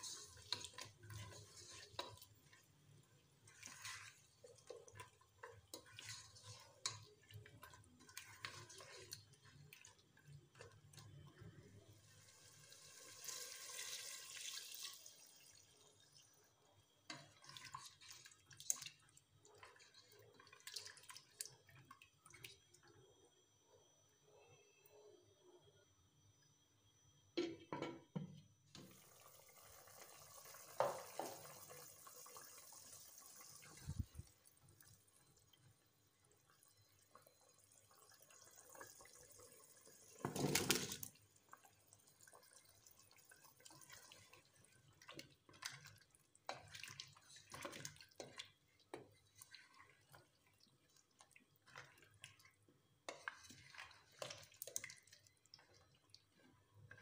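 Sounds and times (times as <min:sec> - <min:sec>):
spatula clicks and liquid sloshes: 0:03.5 - 0:11.5, 0:44.8 - 0:57.0.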